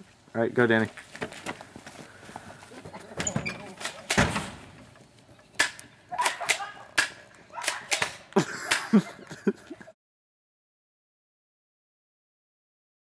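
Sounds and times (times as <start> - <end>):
sharp smacks: 5.6 - 8.9.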